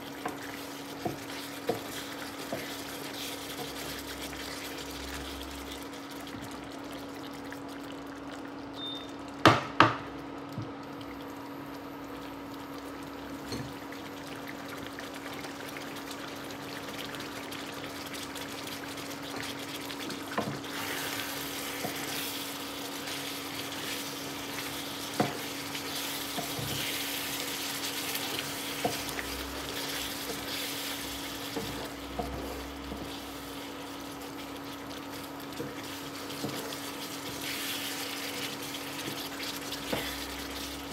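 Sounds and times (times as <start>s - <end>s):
wooden spoon stirring: 0.0s - 6.4s, 15.4s - 40.9s
sauce simmering and sizzling in pan: 0.0s - 9.4s, 10.2s - 40.9s.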